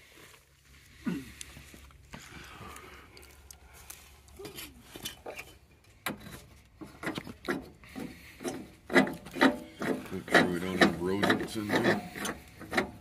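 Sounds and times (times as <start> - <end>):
small metal clicks and scrapes: 4.4 - 13.0.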